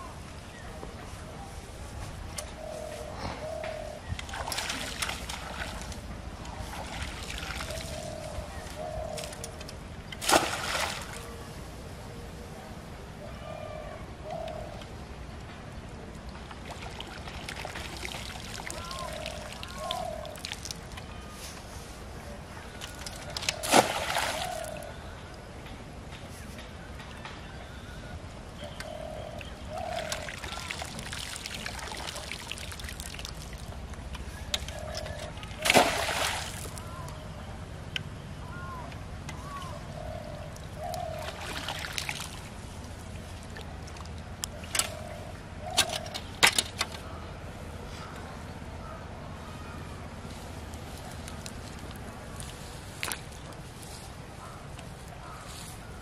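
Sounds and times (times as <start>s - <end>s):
loud splash in pond water: 10.2s - 11.2s, 23.6s - 24.7s, 35.6s - 36.7s
water pouring and dripping from net: 16.7s - 21.0s, 22.8s - 24.8s, 30.0s - 33.8s, 35.5s - 36.8s, 41.2s - 42.5s.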